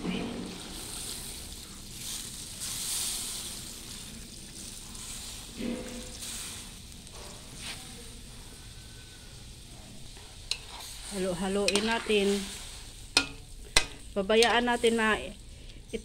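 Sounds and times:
sizzling in hot pan: 0.0 - 16.0
liquid pouring into wok: 0.2 - 7.2.

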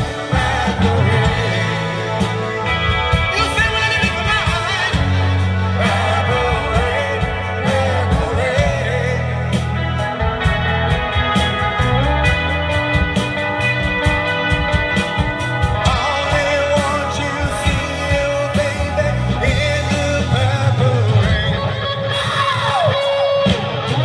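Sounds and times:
man singing into a microphone: 0.0 - 9.9, 15.8 - 24.0
live rock band playing: 0.0 - 24.0.

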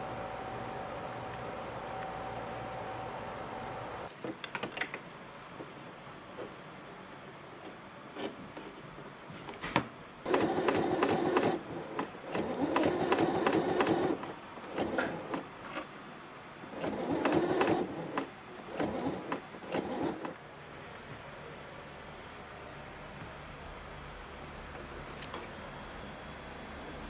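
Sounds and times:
sewing machine running: 10.3 - 15.4, 16.8 - 20.4.

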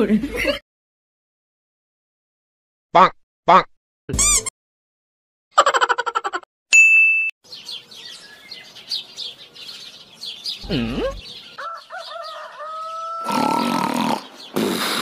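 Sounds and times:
birds chirping: 7.4 - 15.0.

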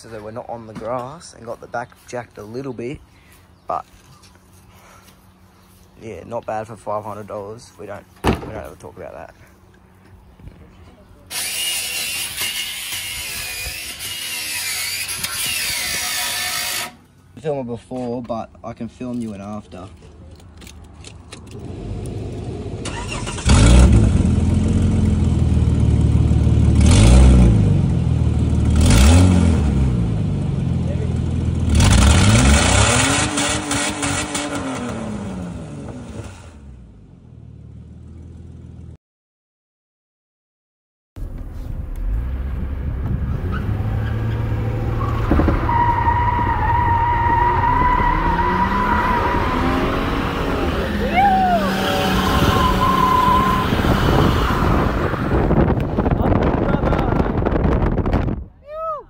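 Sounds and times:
tyre squeal: 11.3 - 17.0, 43.4 - 55.2
car engine starting and revving: 21.4 - 38.9, 41.2 - 58.3.

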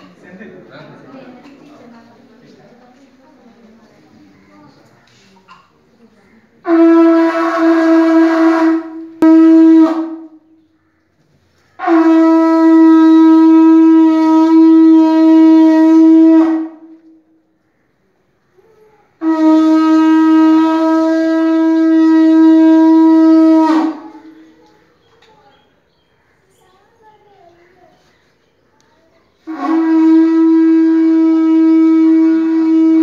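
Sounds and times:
conch shell blasts: 6.6 - 10.5, 11.8 - 17.4, 19.2 - 24.4, 29.4 - 33.0.

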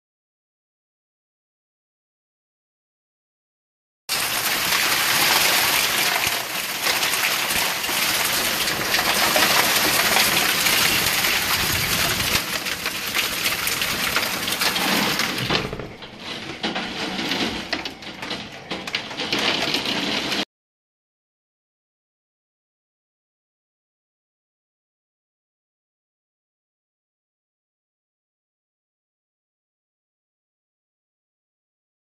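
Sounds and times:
hailstones clicking: 4.1 - 20.4
heavy hail and rain: 4.1 - 20.4
door shutting: 14.4 - 20.4.

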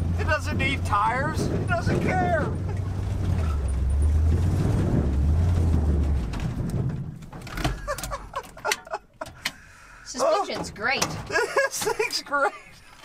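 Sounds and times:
truck engine running: 0.0 - 9.2.

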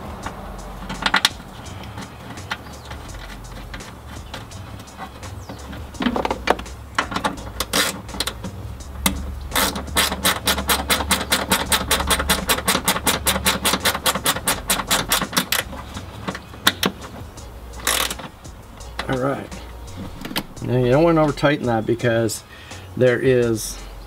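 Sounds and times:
scattered clicks and knocks: 0.0 - 21.4
socket ratchet clicking: 0.2 - 19.2.

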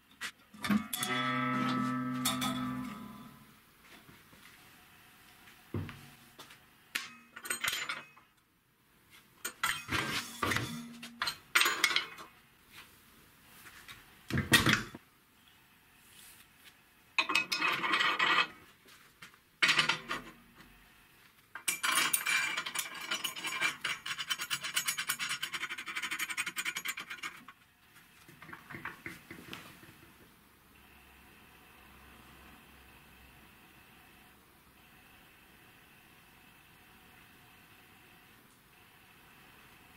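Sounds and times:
steel parts clanking and scraping: 0.6 - 3.4, 7.0 - 8.3, 9.4 - 12.3, 17.2 - 18.6, 19.6 - 20.4, 21.6 - 27.6.

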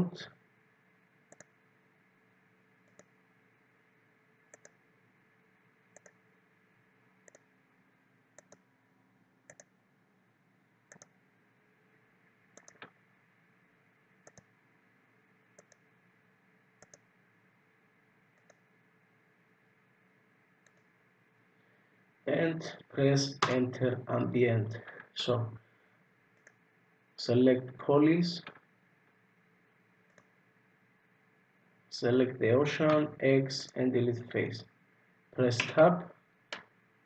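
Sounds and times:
low steady hiss: 0.0 - 37.0
computer mouse button clicks: 12.6 - 12.9.

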